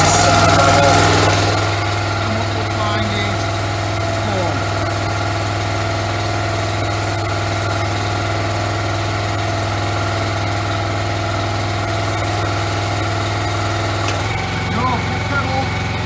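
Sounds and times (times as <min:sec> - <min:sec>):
foam spraying hiss: 0:00.0 - 0:08.4, 0:11.7 - 0:14.4
pressure washer engine running: 0:00.0 - 0:16.0.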